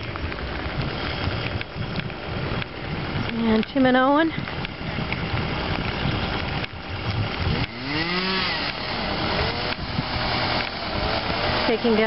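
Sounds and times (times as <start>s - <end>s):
steady rushing noise: 0.0s - 12.0s
chainsaw revving: 7.3s - 12.0s.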